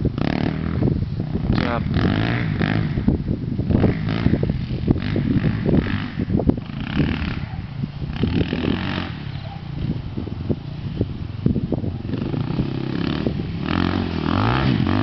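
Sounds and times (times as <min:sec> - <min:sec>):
dirt bike engine running: 0:00.0 - 0:15.0.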